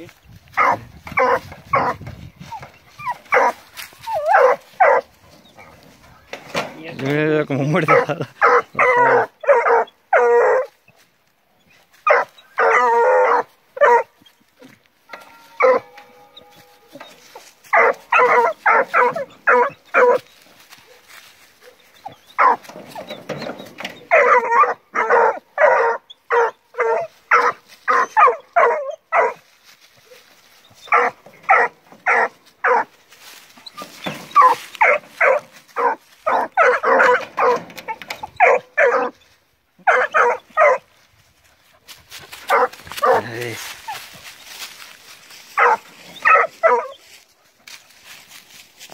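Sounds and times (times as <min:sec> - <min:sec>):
puppy whining: 0:00.6 - 0:05.8, 0:12.1 - 0:14.3, 0:15.2 - 0:20.3, 0:33.6 - 0:40.8
puppies barking and yelping: 0:00.6 - 0:06.0, 0:07.9 - 0:11.0, 0:11.6 - 0:14.5, 0:15.1 - 0:29.4, 0:30.0 - 0:40.9, 0:42.2 - 0:44.9, 0:45.5 - 0:47.2.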